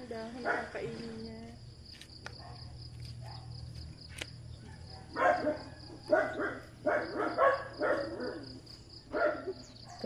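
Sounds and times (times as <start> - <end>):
cricket trilling: 0.0 - 10.0
dog barking: 0.4 - 0.8, 2.4 - 3.5, 4.6 - 10.0.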